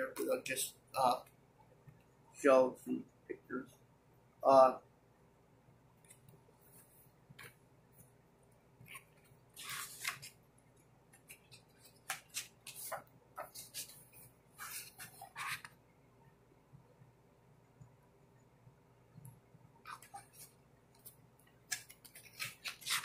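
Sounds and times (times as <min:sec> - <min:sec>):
book pages rustling: 0:08.8 - 0:10.4, 0:11.1 - 0:15.8, 0:19.9 - 0:23.0.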